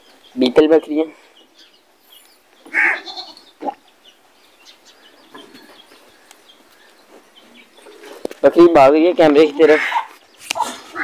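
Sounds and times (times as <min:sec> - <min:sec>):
goat calling: 0:02.6 - 0:03.9, 0:09.4 - 0:11.0.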